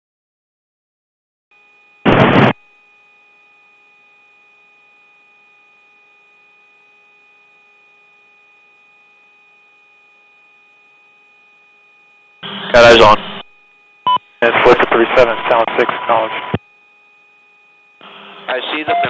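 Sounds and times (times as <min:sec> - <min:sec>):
loud radio noise burst: 0:02.0 - 0:02.6, 0:12.4 - 0:13.5, 0:14.1 - 0:16.6, 0:18.0 - 0:19.0
steady radio tones: 0:02.1 - 0:02.6, 0:12.4 - 0:13.5, 0:14.1 - 0:16.6, 0:18.0 - 0:19.0
faint radio hiss: 0:14.4 - 0:16.6.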